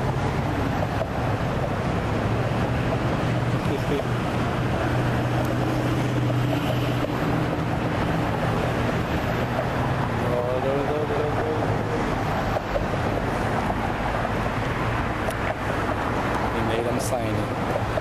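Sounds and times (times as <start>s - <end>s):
low engine hum: 0.0s - 18.0s
street traffic roar: 0.0s - 18.0s
wind buffeting microphone: 0.0s - 18.0s.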